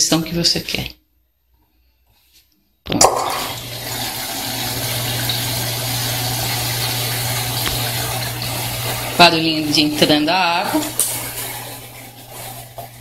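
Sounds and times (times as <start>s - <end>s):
water rushing into washing machine: 3.0s - 13.0s.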